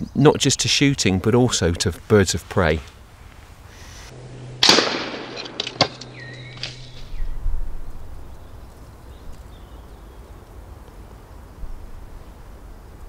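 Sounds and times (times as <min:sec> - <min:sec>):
air rifle shot crack: 0:04.6 - 0:06.8.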